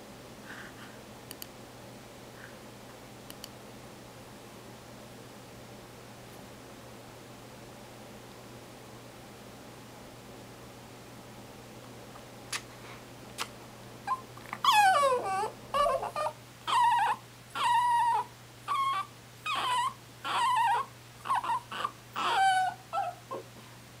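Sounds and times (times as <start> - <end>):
dog whimpering squeaks: 14.1 - 23.4.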